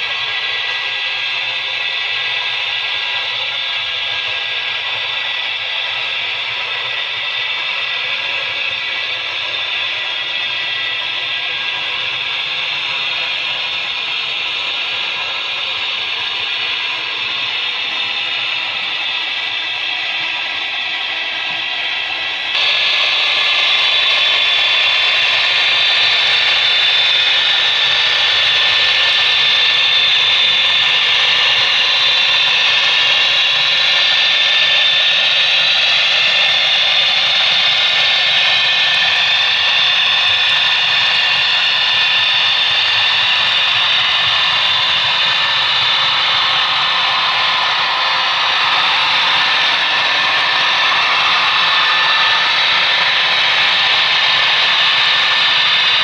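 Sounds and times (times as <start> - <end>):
model train running on track: 0.0 - 56.0.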